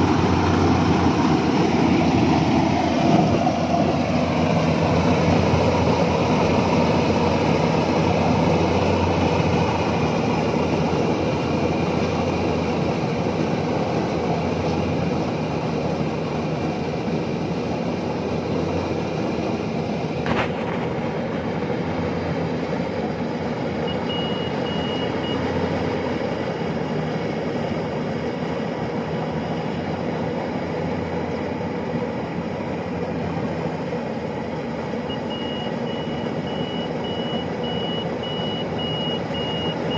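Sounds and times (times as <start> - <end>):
combine harvester running: 0.0 - 39.9
high electronic beeps: 23.9 - 25.4, 35.1 - 39.9.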